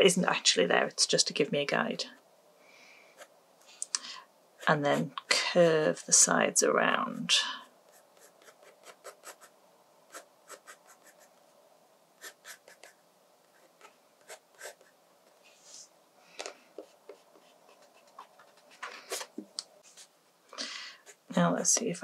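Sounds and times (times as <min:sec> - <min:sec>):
pencil scratching on paper: 0:07.2 - 0:09.5, 0:10.1 - 0:11.4, 0:12.2 - 0:15.7, 0:16.8 - 0:20.1, 0:21.0 - 0:21.3
hand brushing across paper: 0:14.6 - 0:15.9.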